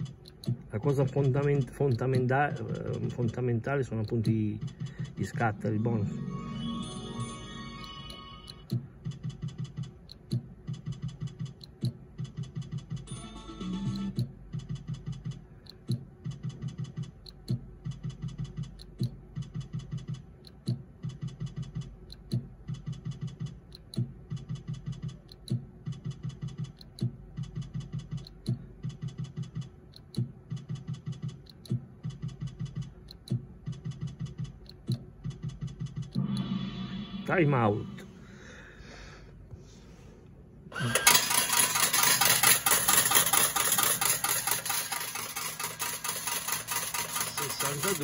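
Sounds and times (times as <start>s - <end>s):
short electronic ticks: 0.0s - 2.4s
slot machine click: 5.2s - 8.7s, 13.0s - 14.3s, 40.8s - 48.0s.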